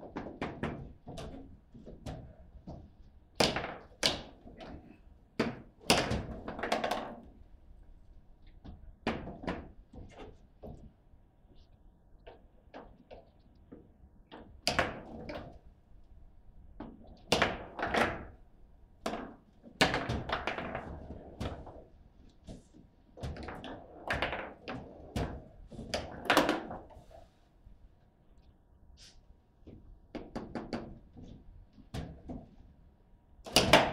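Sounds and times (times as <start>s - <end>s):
table football ball knocks and clacks: 0.0s - 7.5s, 8.5s - 11.0s, 12.2s - 15.7s, 16.8s - 18.4s, 19.0s - 27.0s, 29.6s - 32.6s, 33.4s - 33.9s.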